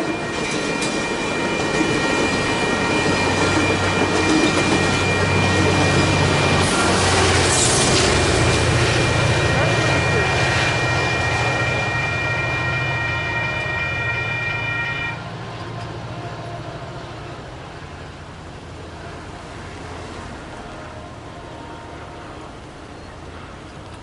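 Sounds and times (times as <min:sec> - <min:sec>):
railroad crossing bell ringing: 0:00.0 - 0:15.3
low train rumble: 0:00.0 - 0:24.0.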